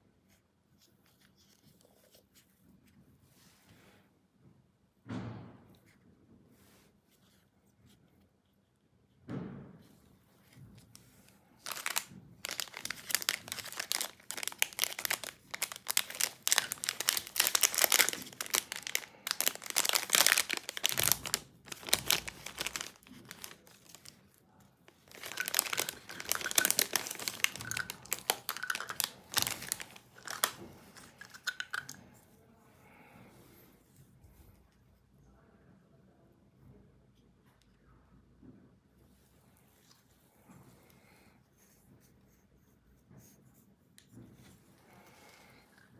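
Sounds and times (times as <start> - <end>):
plastic bag crinkling: 11.6 - 32.0.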